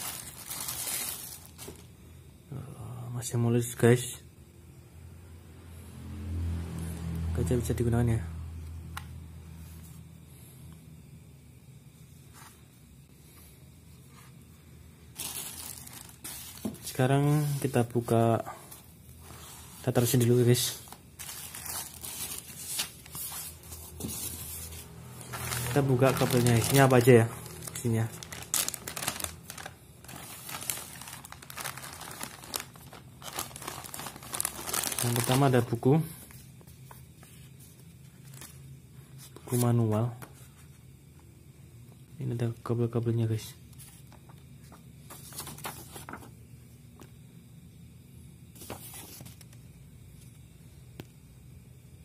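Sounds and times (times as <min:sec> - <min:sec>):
paper pages rustling: 0:00.0 - 0:01.9, 0:15.2 - 0:18.1, 0:18.7 - 0:35.5, 0:36.2 - 0:38.6, 0:43.7 - 0:46.4, 0:48.5 - 0:49.6
plastic bag crinkling: 0:00.0 - 0:01.9, 0:15.1 - 0:17.8, 0:19.8 - 0:35.8.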